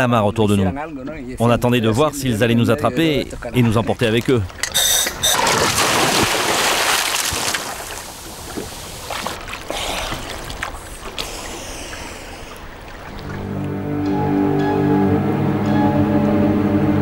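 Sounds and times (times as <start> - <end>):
water sloshing and slapping: 3.4 - 14.0
diver splashing into water: 5.2 - 13.6.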